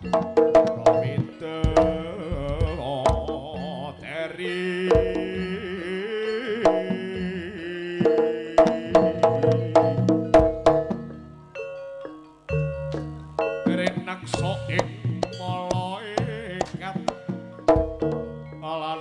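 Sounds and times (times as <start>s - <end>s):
drum strokes: 0.0s - 3.6s, 4.9s - 5.4s, 8.0s - 11.2s, 12.8s - 18.4s
ringing pitched percussion: 0.0s - 3.9s, 8.1s - 19.0s.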